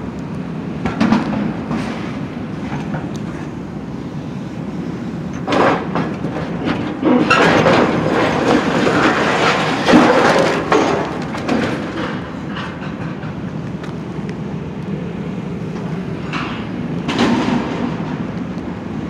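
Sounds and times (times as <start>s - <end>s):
excavator engine rumbling: 0.0s - 19.0s
crunching and scraping metal: 5.2s - 14.3s, 15.7s - 18.4s
metal wall crashing: 5.4s - 13.0s, 17.1s - 18.2s.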